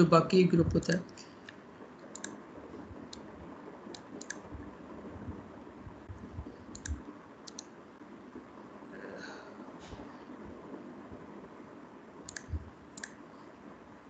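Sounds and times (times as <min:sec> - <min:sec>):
faint steady hiss: 0:00.0 - 0:14.0
computer mouse clicking: 0:01.5 - 0:02.4, 0:03.9 - 0:04.4, 0:06.7 - 0:07.7, 0:12.3 - 0:13.2.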